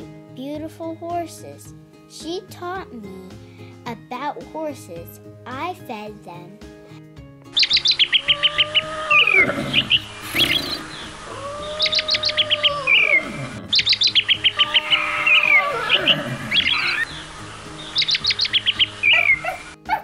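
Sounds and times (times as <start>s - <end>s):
soft background music: 0.0s - 20.0s
bird chirping trill: 7.5s - 19.8s
low sliding bird call: 7.6s - 19.7s.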